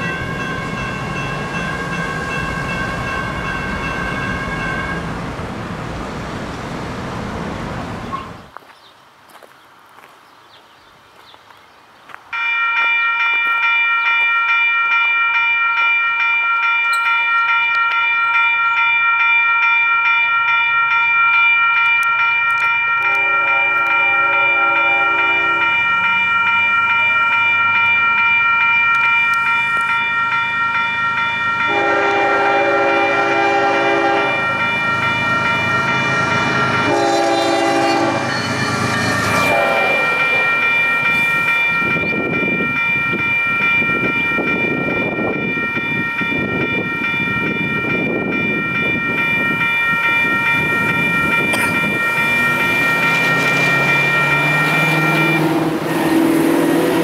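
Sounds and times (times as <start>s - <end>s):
crossing bell ringing: 0.0s - 5.1s, 12.3s - 57.0s
train horn blasts: 3.9s - 5.1s, 23.0s - 25.9s, 31.6s - 34.6s, 35.8s - 40.7s
train wheels clattering on rails: 36.6s - 57.0s.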